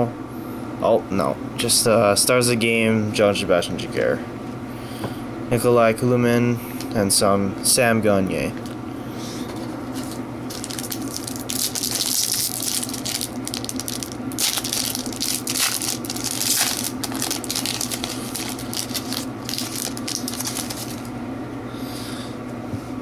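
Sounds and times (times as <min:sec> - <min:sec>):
foil wrapper crinkling: 0:09.6 - 0:21.1.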